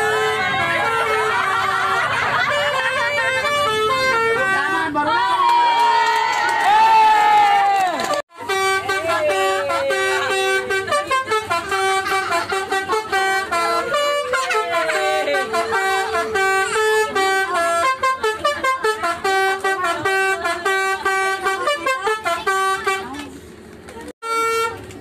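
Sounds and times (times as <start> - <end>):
multi-tone musical air horn: 0.0 - 4.8, 8.3 - 23.2, 24.2 - 24.9.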